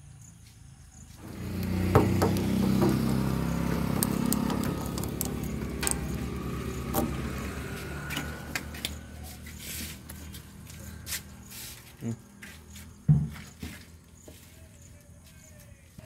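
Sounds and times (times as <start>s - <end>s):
engine rumbling: 1.1s - 14.2s
metal filler cap clicking: 4.0s - 7.2s.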